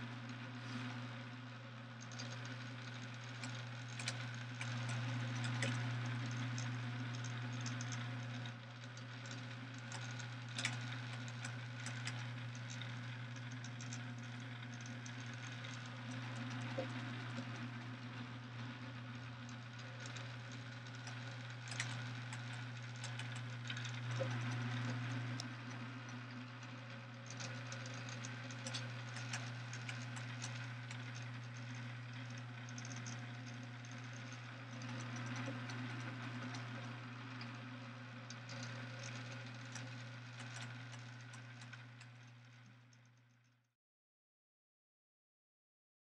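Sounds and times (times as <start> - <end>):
small electric motor hum: 0.0 - 43.6
moving parts clicking and rattling: 27.2 - 37.6.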